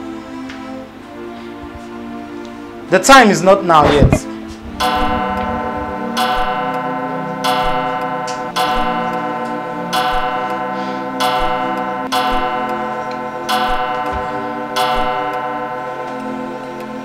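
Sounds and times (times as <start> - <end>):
steady low tones: 3.7 - 17.0
bell-like clock ticks: 4.8 - 17.0.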